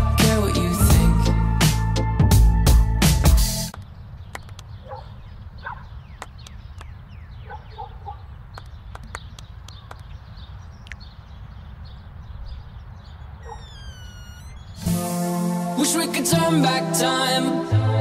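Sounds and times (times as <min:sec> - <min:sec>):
sharp clicks: 0:03.7 - 0:04.8, 0:06.2 - 0:07.0, 0:08.5 - 0:10.2.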